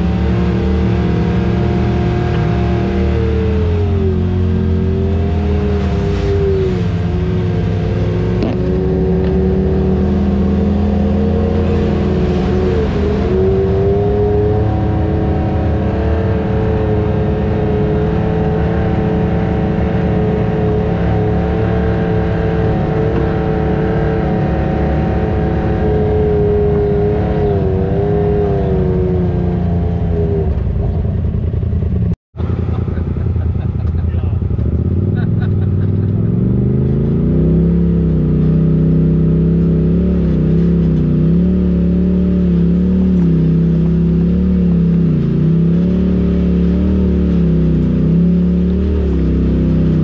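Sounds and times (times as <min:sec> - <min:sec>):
utility vehicle engine running: 0:00.0 - 0:50.0.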